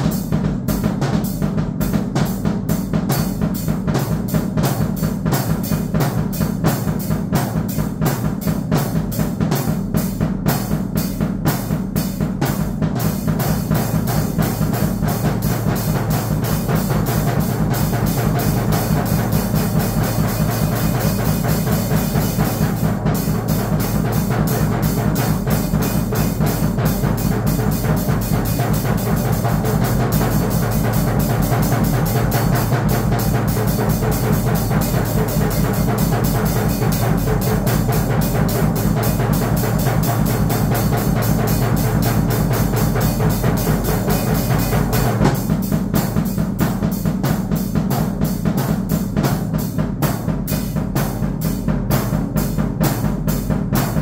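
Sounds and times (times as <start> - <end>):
drum kit fast rhythm: 0.0 - 54.0
cymbal wash: 12.6 - 46.3.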